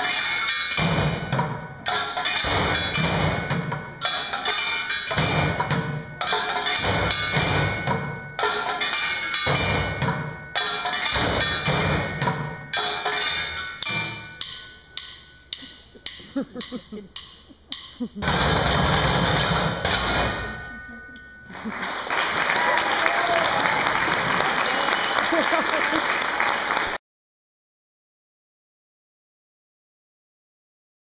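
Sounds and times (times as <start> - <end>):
drumsticks on buckets and trash cans: 0.0 - 21.3.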